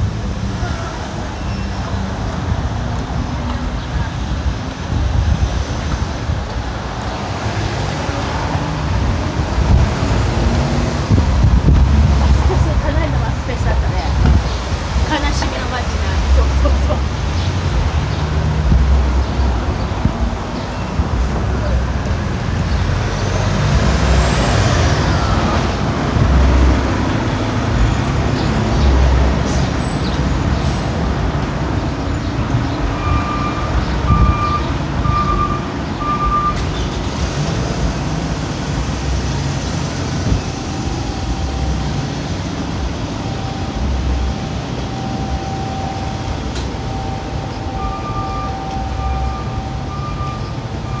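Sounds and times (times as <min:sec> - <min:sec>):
traffic rumbling by: 0:00.0 - 0:51.0
high electronic beeps: 0:33.0 - 0:36.6, 0:40.3 - 0:51.0.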